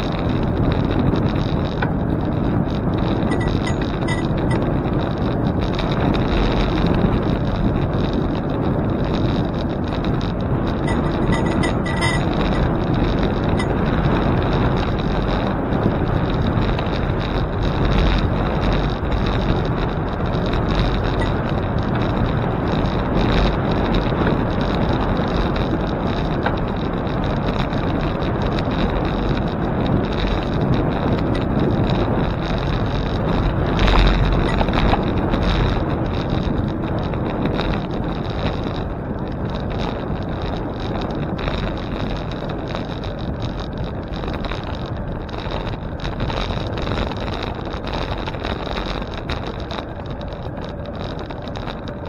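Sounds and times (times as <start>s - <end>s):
wind buffeting microphone: 0.0s - 52.0s
brief high squeak: 10.9s - 12.3s.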